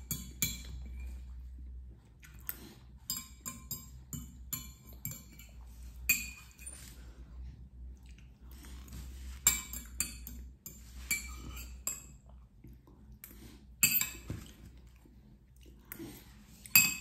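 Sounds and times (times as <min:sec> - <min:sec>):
cutlery clinking on a plate: 0:13.8 - 0:14.5.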